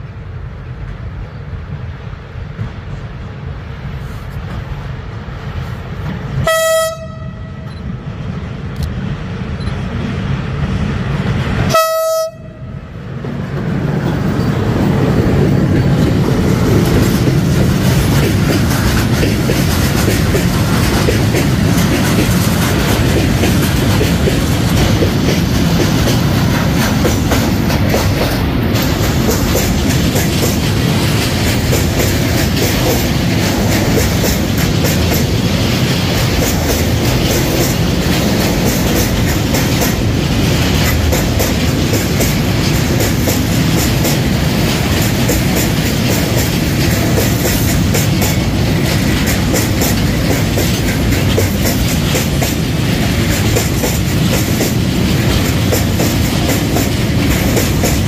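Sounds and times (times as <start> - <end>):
locomotive horn blasts: 6.4 - 7.7, 11.7 - 12.8
train wheels clattering on rails: 7.6 - 58.0.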